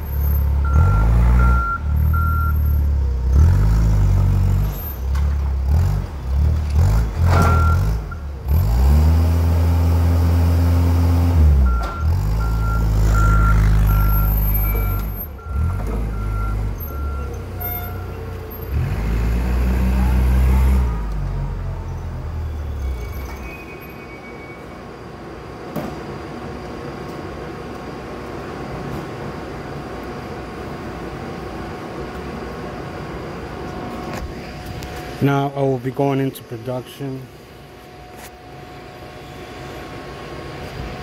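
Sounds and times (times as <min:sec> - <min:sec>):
forklift engine revving: 0:00.0 - 0:23.2
backup alarm beeping: 0:00.6 - 0:02.7, 0:11.7 - 0:18.2.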